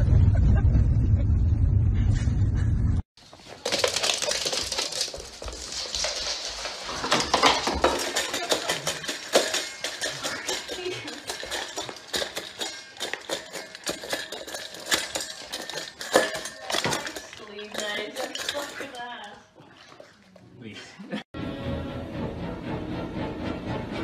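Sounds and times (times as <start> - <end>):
metal dog bowl clattering on floor: 3.3 - 20.1.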